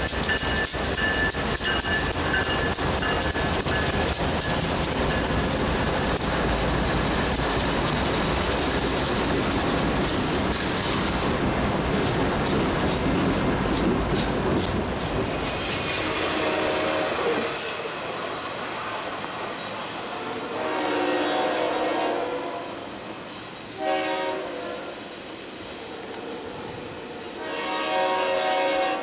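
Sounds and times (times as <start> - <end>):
steel wheels clattering on rails: 0.0 - 18.4
diesel locomotives rumbling: 0.0 - 29.0.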